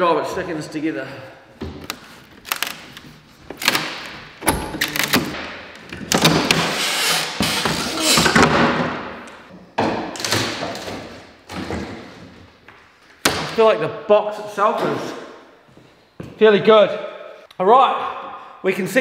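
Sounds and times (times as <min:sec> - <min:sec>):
sharp knocks and cracks of wood: 0:03.5 - 0:06.7, 0:13.2 - 0:13.6.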